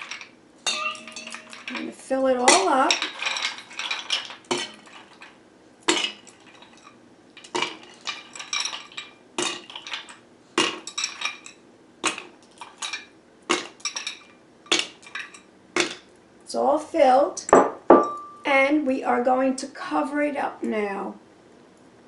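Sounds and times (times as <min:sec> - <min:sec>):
ice clinking in metal shaker: 0:00.0 - 0:10.2
ice clattering: 0:00.0 - 0:16.0.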